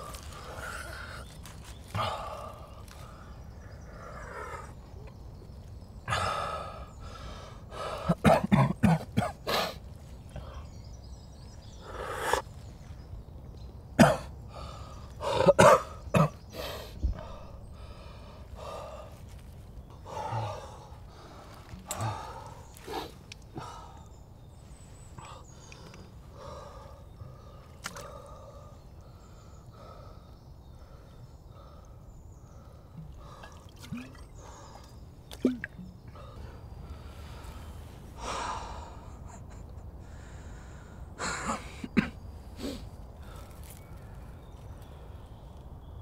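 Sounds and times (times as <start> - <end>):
man coughing: 8.1 - 9.4, 15.4 - 16.4, 41.2 - 42.2
man breathing heavily and gasping: 32.6 - 34.9.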